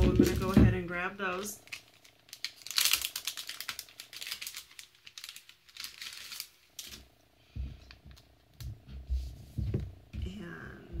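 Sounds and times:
crinkly rustling and tearing crackles: 0:00.0 - 0:07.1.

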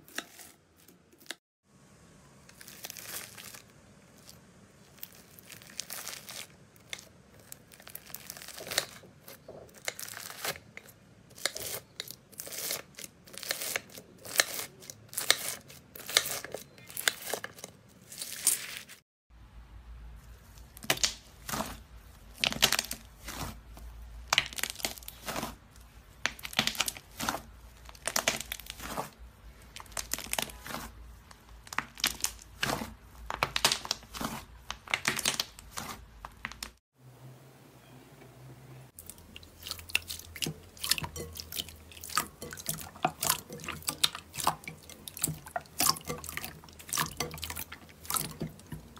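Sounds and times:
hands squeezing crackling slime: 0:02.5 - 0:09.0, 0:20.5 - 0:36.8.

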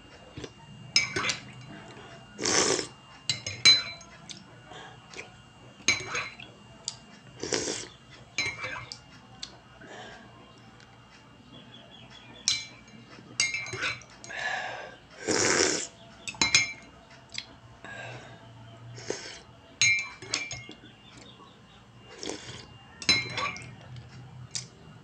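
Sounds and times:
slurping sips: 0:02.4 - 0:02.9, 0:07.4 - 0:07.9, 0:15.2 - 0:15.9
spoon clinking against mug: 0:03.3 - 0:04.1, 0:05.8 - 0:06.4, 0:08.4 - 0:08.9, 0:12.5 - 0:14.3, 0:16.3 - 0:16.9, 0:19.8 - 0:20.8, 0:23.0 - 0:23.7.

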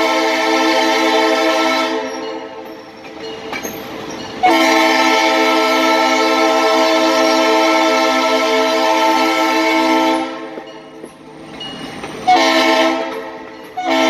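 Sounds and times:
train horn blast: 0:00.0 - 0:02.3, 0:04.4 - 0:10.6, 0:12.3 - 0:14.0
train rolling: 0:00.0 - 0:14.0.

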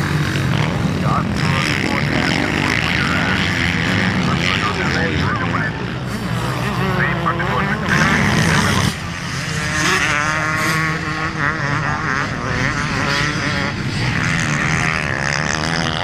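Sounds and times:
motorcycle engines revving: 0:00.0 - 0:16.0.

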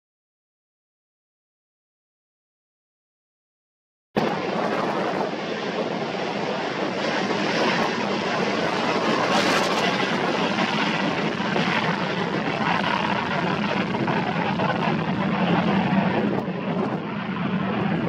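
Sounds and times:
jet engines rumbling: 0:04.2 - 0:18.0.

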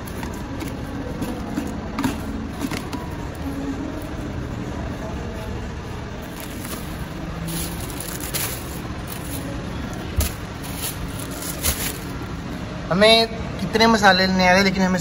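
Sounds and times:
plastic bags rustling: 0:06.2 - 0:12.3.

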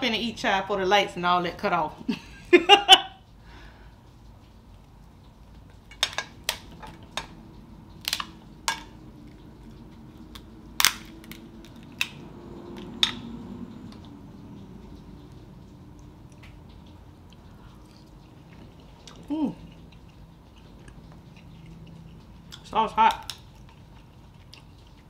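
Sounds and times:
crab shells cracking: 0:05.5 - 0:13.3, 0:16.0 - 0:25.0.

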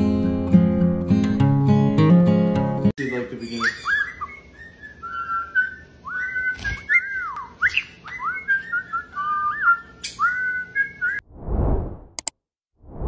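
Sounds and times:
parrot whistling a tune: 0:03.0 - 0:11.2.

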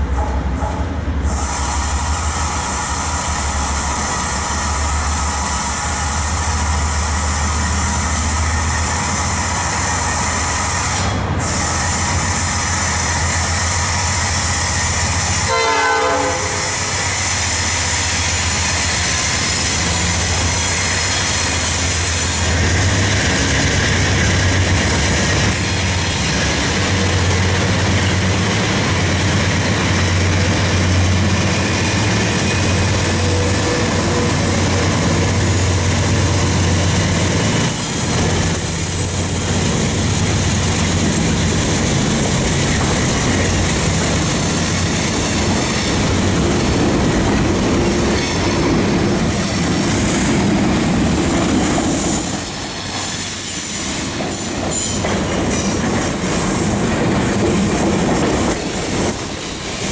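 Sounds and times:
train horn: 0:15.4 - 0:17.0, 0:32.5 - 0:35.0
locomotive engine rumble: 0:17.8 - 0:59.9.

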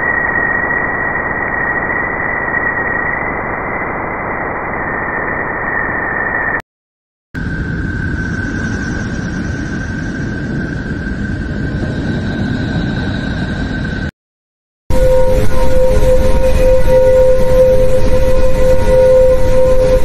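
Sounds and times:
whistle-like tone: 0:00.0 - 0:06.6, 0:14.9 - 0:20.0
steady lower tone: 0:14.9 - 0:20.0.

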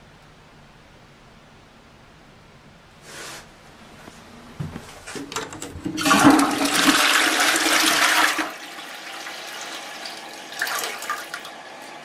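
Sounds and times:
toilet flushing: 0:05.1 - 0:12.0.

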